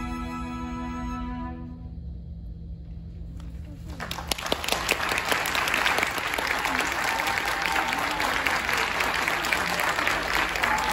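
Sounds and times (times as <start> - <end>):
audience applauding: 3.9 - 10.9.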